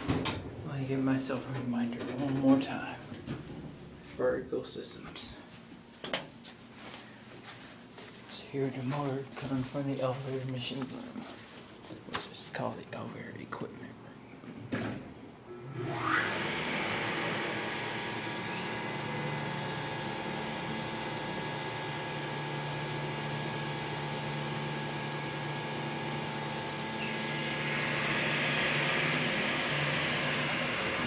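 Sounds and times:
elevator pump motor humming: 15.5s - 31.0s.

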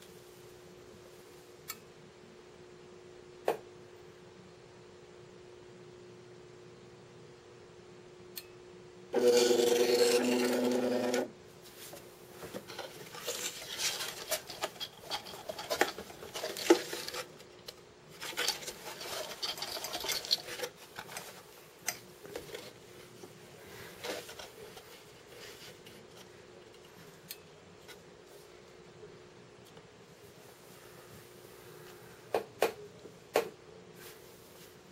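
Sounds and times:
drawing toy rattling and scraping: 9.2s - 11.3s, 12.4s - 26.9s.

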